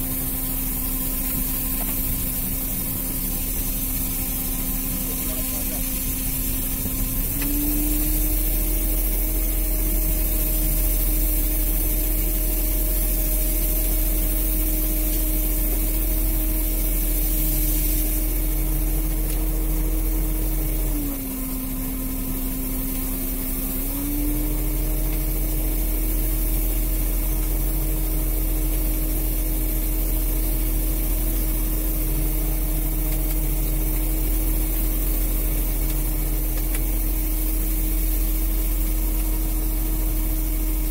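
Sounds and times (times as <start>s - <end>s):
boat engine and line hauler humming: 0.0s - 40.9s.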